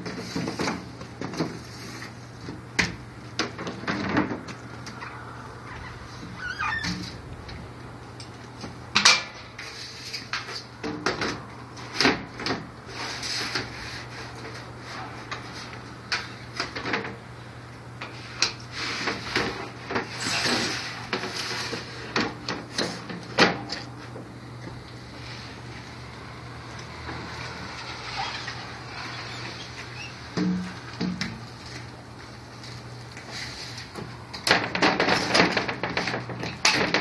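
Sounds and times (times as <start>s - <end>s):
steady low hum: 2.2s - 10.2s.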